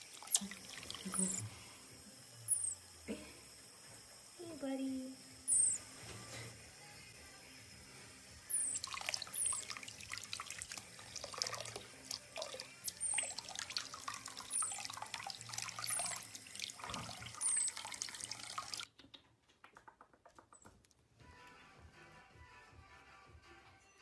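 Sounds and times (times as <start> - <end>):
faucet water running: 0.0 - 5.8, 8.2 - 18.9.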